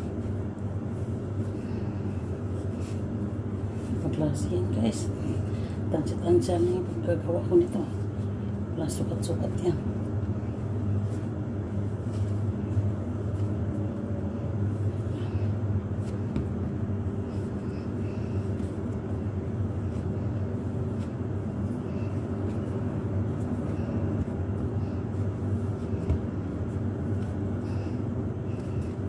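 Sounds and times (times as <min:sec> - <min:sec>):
dough being kneaded by hand: 0:00.0 - 0:29.0
low mechanical hum: 0:00.0 - 0:29.0.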